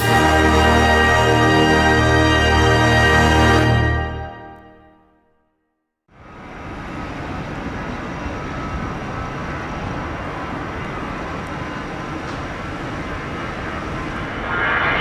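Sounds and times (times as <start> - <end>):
faint high whine: 6.2 - 15.0
jet engines rumbling: 6.2 - 15.0.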